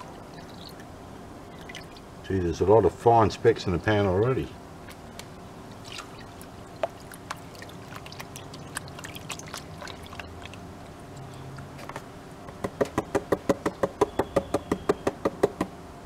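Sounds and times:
water sloshing in a pan: 0:05.7 - 0:11.5.

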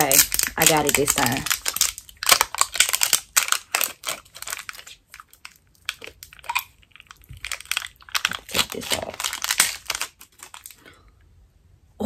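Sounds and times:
packaging wrap crinkling and tearing: 0:00.0 - 0:10.8.

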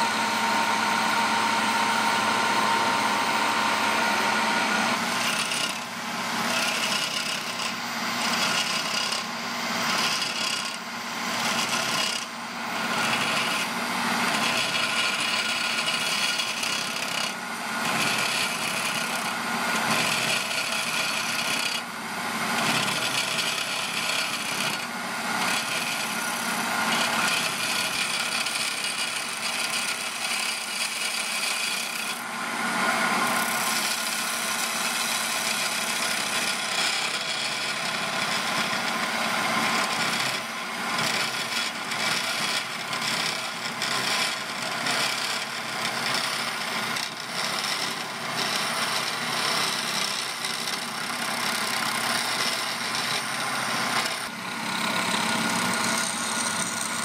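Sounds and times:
drill bit scraping wood: 0:00.0 - 0:57.0
wood lathe hum: 0:00.0 - 0:57.0.

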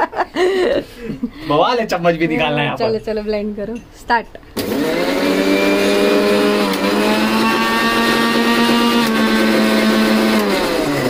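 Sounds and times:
mixer grinder motor running: 0:04.6 - 0:11.0.

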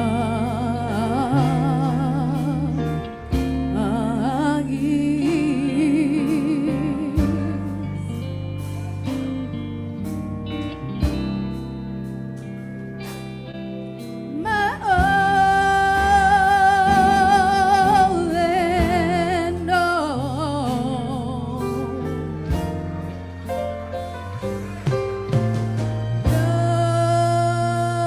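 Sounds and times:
woman singing gospel song: 0:00.0 - 0:08.4, 0:14.3 - 0:22.3, 0:26.2 - 0:28.0
instrumental accompaniment: 0:00.0 - 0:28.0.

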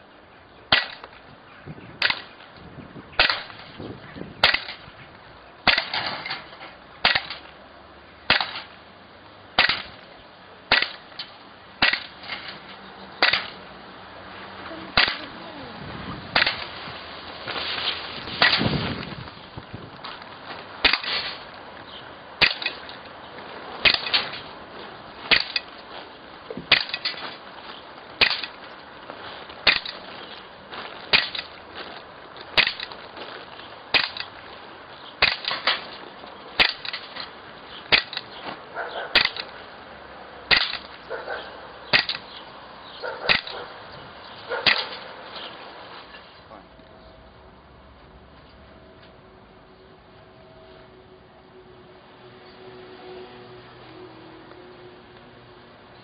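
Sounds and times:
air gun shots cracking: 0:02.0 - 0:02.4, 0:03.2 - 0:03.8, 0:04.4 - 0:04.9, 0:05.6 - 0:06.4, 0:07.0 - 0:07.5, 0:08.3 - 0:08.8, 0:09.6 - 0:10.0, 0:10.7 - 0:12.6, 0:13.2 - 0:13.6, 0:14.9 - 0:15.3, 0:16.3 - 0:16.8, 0:18.3 - 0:19.1, 0:20.8 - 0:21.5, 0:22.4 - 0:23.0, 0:23.8 - 0:24.5, 0:25.3 - 0:25.7, 0:26.7 - 0:27.4, 0:28.2 - 0:28.6, 0:29.6 - 0:30.1, 0:32.6 - 0:33.0, 0:33.9 - 0:34.3, 0:35.2 - 0:36.0, 0:36.6 - 0:37.3, 0:37.9 - 0:38.4, 0:39.1 - 0:39.6, 0:40.5 - 0:41.0, 0:41.9 - 0:42.4, 0:43.2 - 0:43.7, 0:44.6 - 0:45.1.

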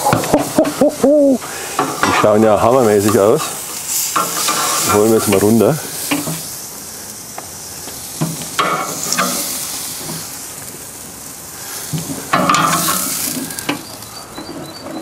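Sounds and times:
steaks sizzling on grill: 0:00.0 - 0:15.0
metal tongs clicking on grate: 0:12.3 - 0:13.8.

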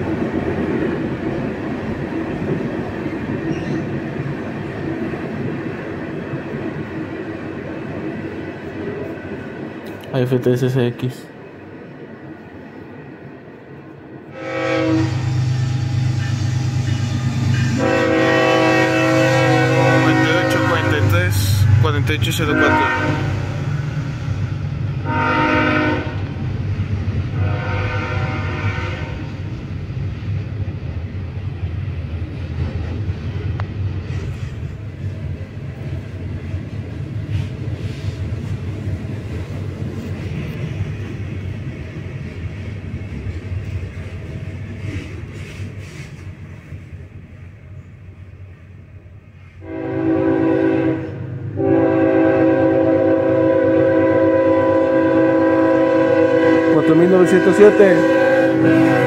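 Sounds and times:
freight train wheels rumbling: 0:00.0 - 0:59.0
locomotive horn chord: 0:14.3 - 0:23.7, 0:25.0 - 0:26.3, 0:27.3 - 0:29.3, 0:49.6 - 0:59.0.

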